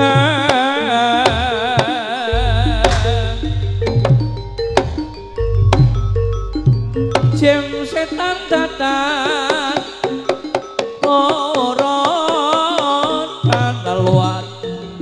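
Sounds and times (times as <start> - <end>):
deep bass: 2.3 - 9.2
sharp drum strokes: 2.3 - 10.8
melodic lead with vibrato: 2.3 - 12.6.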